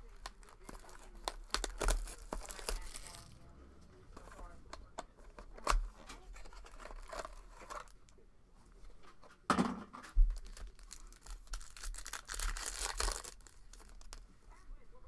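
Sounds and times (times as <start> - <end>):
foil wrapper crinkling: 0.0 - 3.4, 4.2 - 8.0, 10.1 - 14.3.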